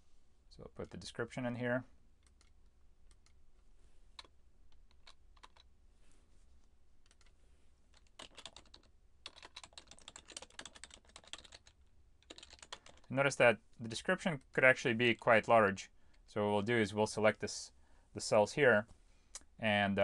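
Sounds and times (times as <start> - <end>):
faint keyboard typing: 0.7 - 1.2, 2.2 - 5.7, 7.0 - 13.3.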